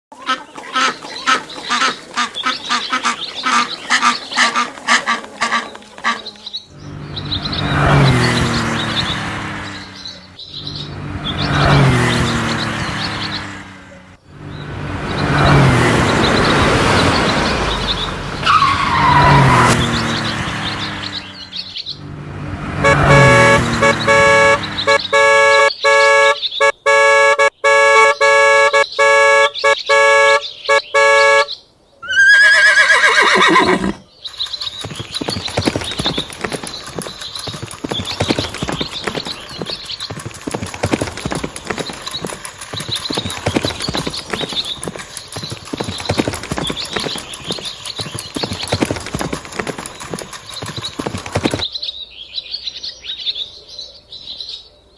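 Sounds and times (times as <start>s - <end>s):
hooves clip-clopping: 0.2s - 6.6s, 33.2s - 51.7s
horn-like tone: 22.8s - 31.5s
horse whinny: 32.0s - 34.1s
toy engine revving: 33.4s - 51.6s.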